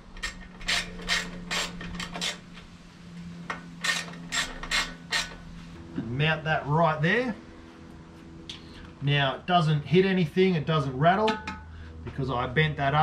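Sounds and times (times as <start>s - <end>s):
hand ratchet clicking: 0.1s - 2.4s, 3.8s - 5.4s.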